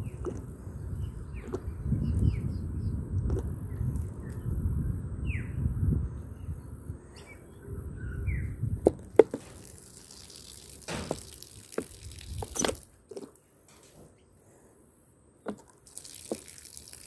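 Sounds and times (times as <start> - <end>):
bird chirping: 0.0 - 8.8
liquid spattering on leaves: 9.4 - 12.9, 15.8 - 17.0.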